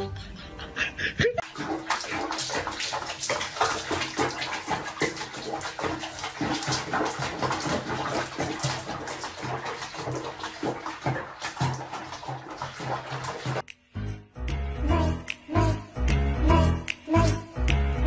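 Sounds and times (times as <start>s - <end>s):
water splashing in sink: 1.4s - 13.7s.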